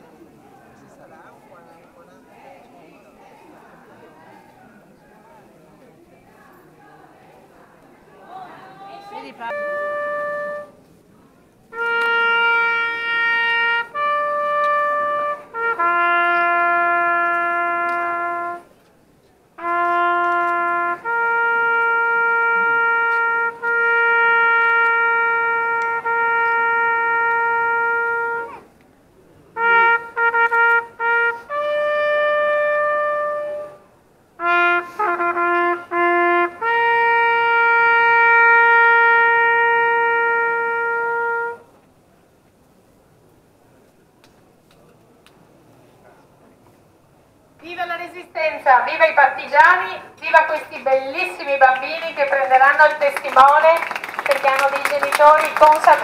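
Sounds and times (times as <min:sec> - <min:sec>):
solo trumpet melody: 0:09.4 - 0:10.8, 0:11.7 - 0:18.8, 0:19.6 - 0:28.7, 0:29.5 - 0:41.7.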